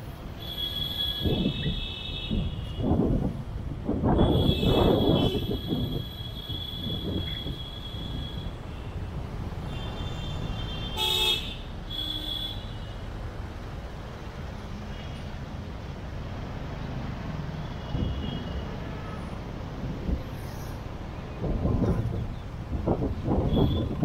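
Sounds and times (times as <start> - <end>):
city traffic rumble: 0.0 - 24.0
vehicle horn toots: 4.2 - 9.0, 9.7 - 12.7.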